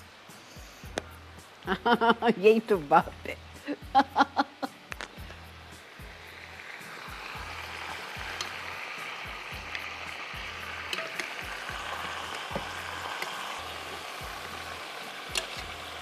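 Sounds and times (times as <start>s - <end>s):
meat sizzling in hot oil: 4.6s - 16.0s.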